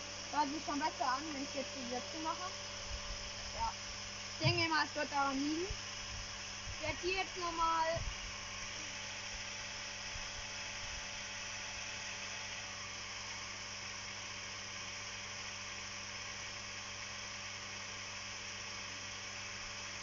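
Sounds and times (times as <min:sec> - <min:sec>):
electric water pump humming: 0:00.0 - 0:20.0
rough pump noises: 0:04.4 - 0:04.9.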